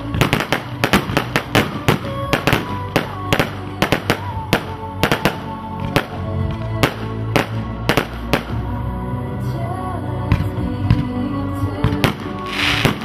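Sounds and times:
fireworks firing sharp bangs: 0.0 - 6.2, 11.8 - 13.0
background music: 0.0 - 13.0.

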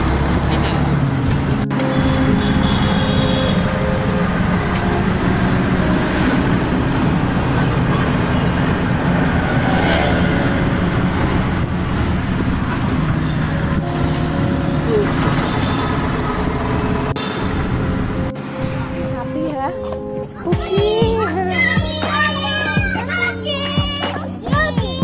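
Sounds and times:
low engine hum: 0.0 - 19.7
traffic noise: 0.0 - 25.0
rushing air: 3.6 - 18.9.

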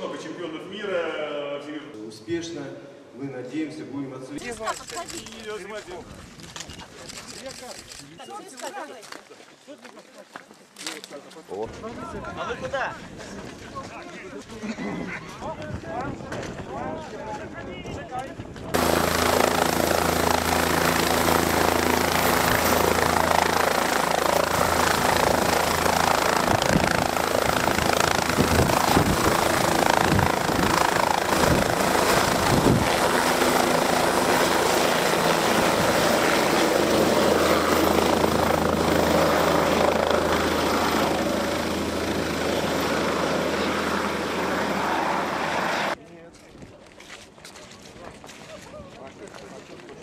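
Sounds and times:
helicopter turbine and rotor: 18.7 - 46.0.

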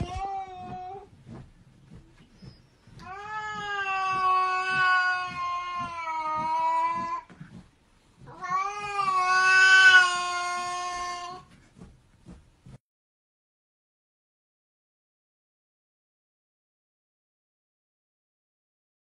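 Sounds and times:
cat yowling: 3.0 - 7.3, 8.3 - 11.4.

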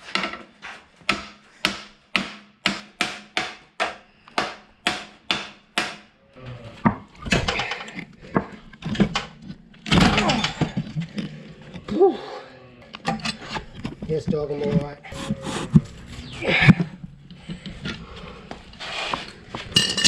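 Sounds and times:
metal clatter: 19.6 - 20.0.

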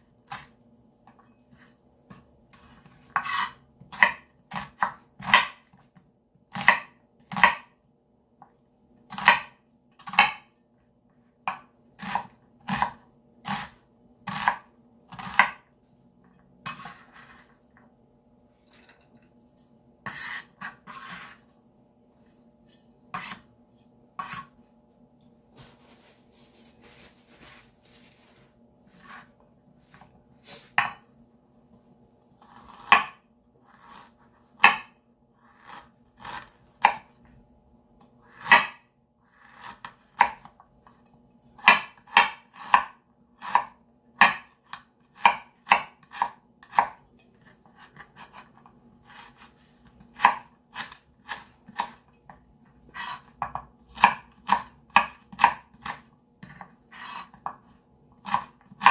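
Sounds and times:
knife striking cutting board: 30.8 - 31.0.

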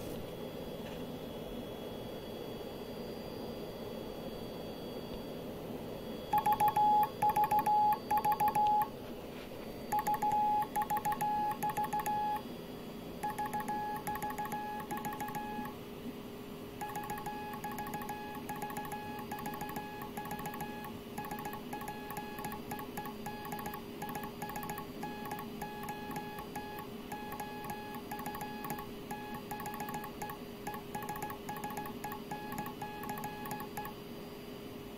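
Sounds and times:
morse code sidetone beeping: 6.3 - 8.9, 9.9 - 12.4, 13.2 - 15.7, 16.8 - 33.9.

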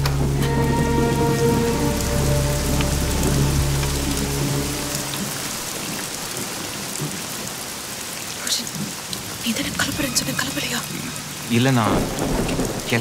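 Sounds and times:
low held drone: 0.0 - 5.8
heavy rain pouring: 0.0 - 13.0.

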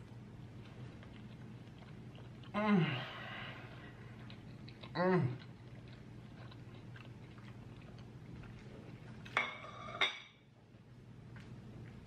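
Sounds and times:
faint chewing of noodles: 0.0 - 9.4, 10.6 - 12.0
tableware clinks: 9.4 - 10.4.

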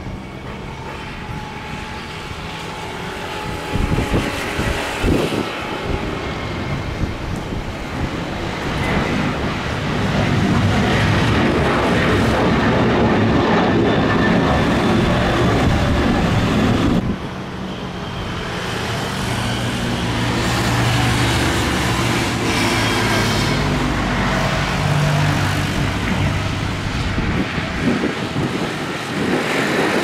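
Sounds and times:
jet engines roaring at takeoff: 0.0 - 30.0.

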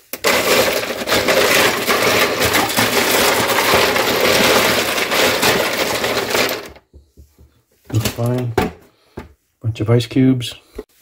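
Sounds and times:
ice cubes clattering: 0.0 - 6.8.

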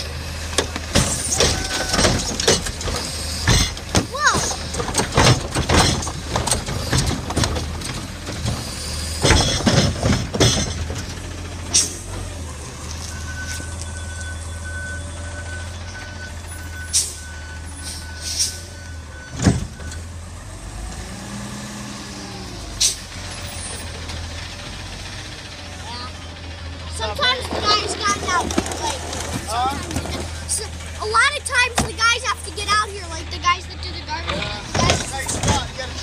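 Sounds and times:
cart banging and slamming: 0.0 - 20.1, 26.9 - 32.2, 34.2 - 36.0
garbage truck engine running: 0.0 - 36.0
air-brake hisses: 17.8 - 18.7.

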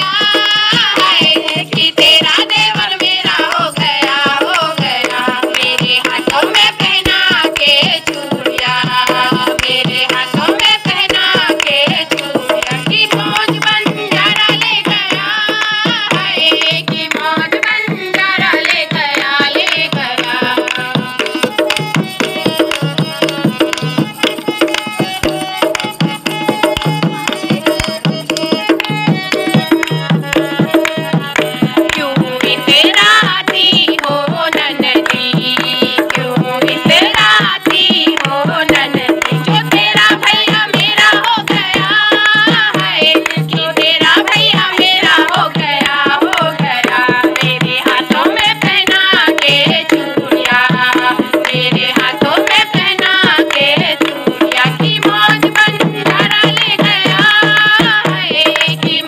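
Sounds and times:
folk singing: 0.0 - 59.0
hand drum beat: 0.0 - 59.0
people clapping: 0.0 - 59.0.

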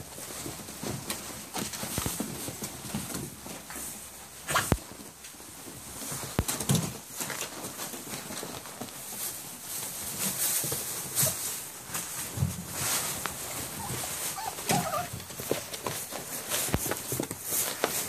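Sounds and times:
paper crinkling and rustling: 0.0 - 18.0
paws scratching and tapping: 0.0 - 18.0
puppy squeak: 13.8 - 15.2.

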